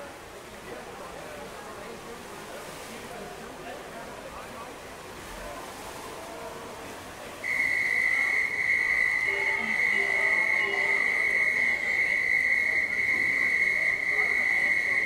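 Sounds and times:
steady high electronic tone: 0:08.4 - 0:12.8.

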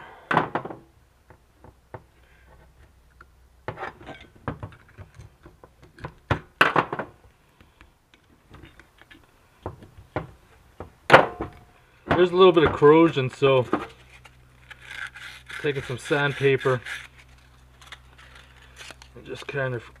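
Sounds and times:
screwdriver scraping on metal: 0:13.9 - 0:18.0.

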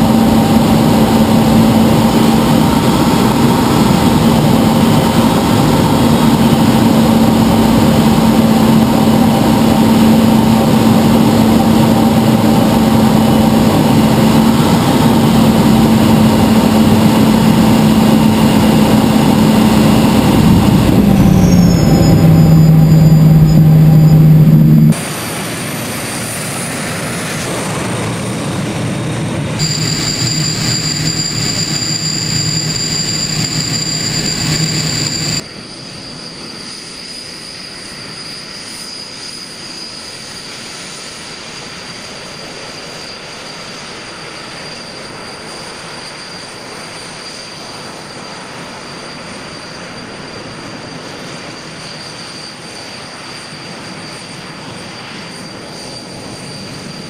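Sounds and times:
rush of exhaust noise: 0:00.0 - 0:35.5
jet engines high-pitched whine: 0:00.0 - 0:57.0.

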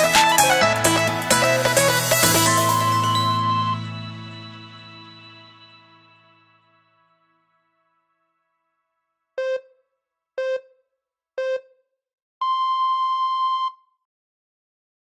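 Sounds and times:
countdown timer beeps: 0:02.7 - 0:04.5, 0:09.4 - 0:09.8, 0:10.4 - 0:10.8, 0:11.4 - 0:11.8, 0:12.4 - 0:13.9.

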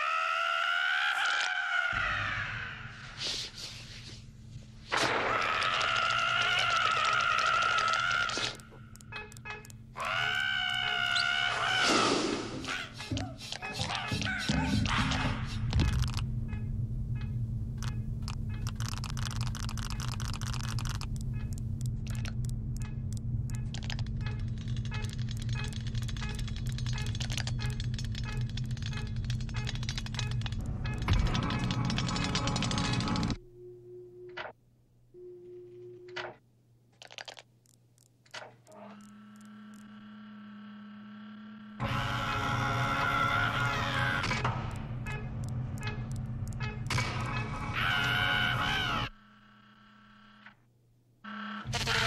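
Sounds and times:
jukebox electrical hum: 0:03.8 - 0:11.8, 0:12.4 - 0:52.0
quick irregular clicks: 0:17.8 - 0:33.4, 0:36.9 - 0:39.9
steady buzzing tone: 0:38.7 - 0:42.4.

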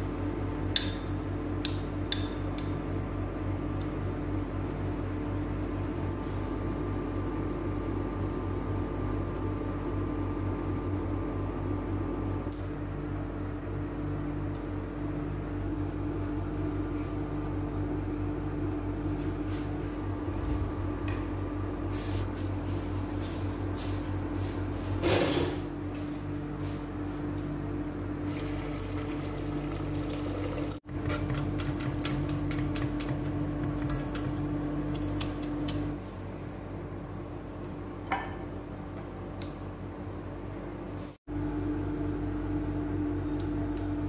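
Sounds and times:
electric hum from hob: 0:00.0 - 0:44.0
liquid bubbling in a pot: 0:28.1 - 0:35.6.

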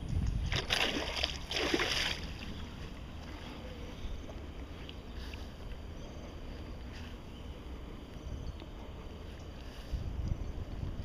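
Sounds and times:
wind rumble on microphone: 0:00.0 - 0:11.0
fish splashing in water: 0:00.4 - 0:02.7.

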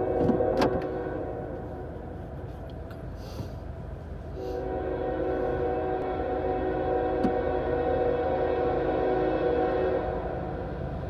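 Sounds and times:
locomotive air horn: 0:00.0 - 0:02.0, 0:04.3 - 0:10.8.

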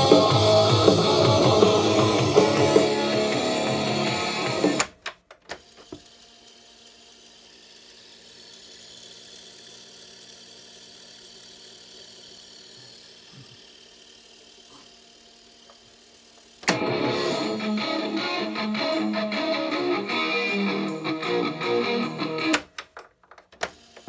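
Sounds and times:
cassette tape music: 0:00.0 - 0:06.1, 0:15.6 - 0:24.0
tape transport whir: 0:00.0 - 0:14.7, 0:15.6 - 0:24.0.

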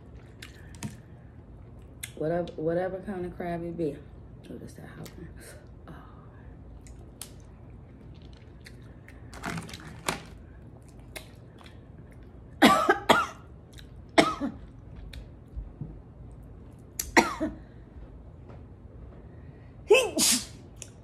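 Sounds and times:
woman coughing: 0:12.6 - 0:13.5, 0:14.2 - 0:14.6, 0:17.1 - 0:17.6.

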